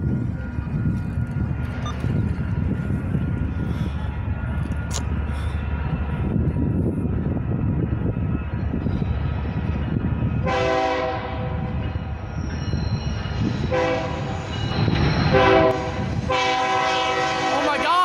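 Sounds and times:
steady low rumble: 0:00.0 - 0:10.5
locomotive air horn blasts: 0:10.4 - 0:11.4, 0:13.7 - 0:14.3, 0:15.3 - 0:17.8.

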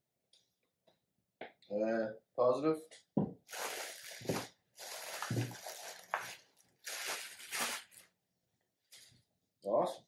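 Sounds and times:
plastic bag crinkling: 0:03.5 - 0:08.1.

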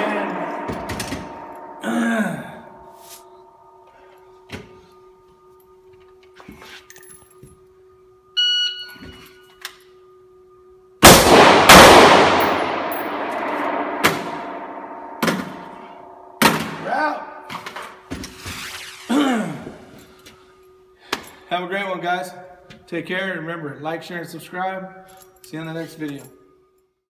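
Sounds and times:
rifle shots: 0:11.0 - 0:14.6.

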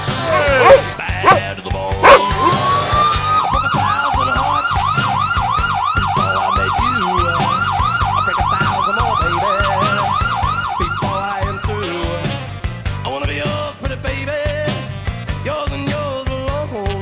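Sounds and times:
background music with bass: 0:00.0 - 0:17.0
police siren yelp: 0:00.1 - 0:01.4, 0:02.0 - 0:12.5.

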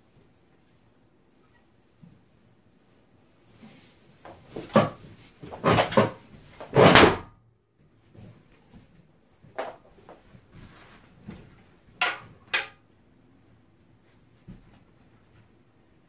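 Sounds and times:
balloons squashed rubbing and thumping: 0:03.6 - 0:07.3.

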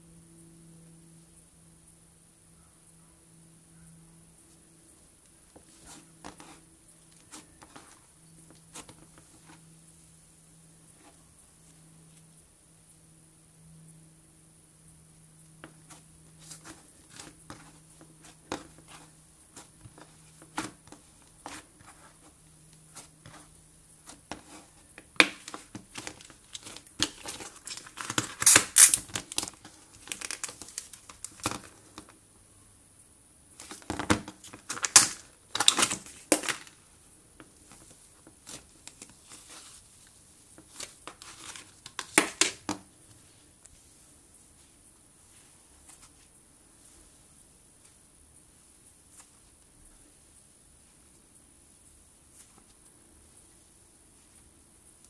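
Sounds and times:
slime crackling and popping: 0:25.2 - 0:31.6.

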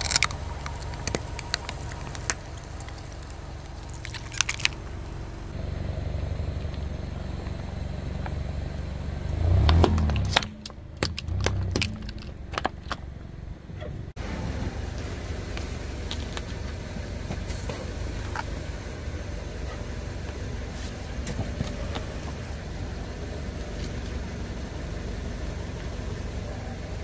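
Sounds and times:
jars cracking and crunching: 0:00.0 - 0:05.5, 0:10.0 - 0:13.0
plastic bottles crackling: 0:00.0 - 0:05.5
tyre rumbling on asphalt: 0:00.0 - 0:26.1.

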